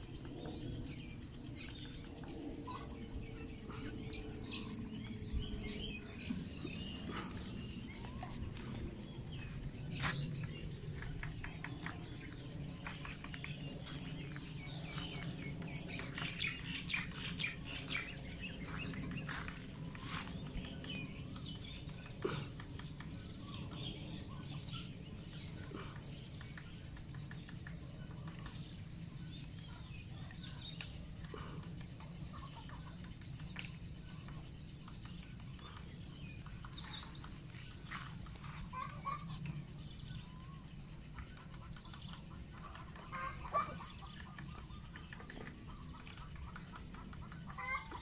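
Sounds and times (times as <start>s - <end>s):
woodpeckers tapping on wood: 9.4s - 23.9s, 25.2s - 40.0s, 41.0s - 48.0s.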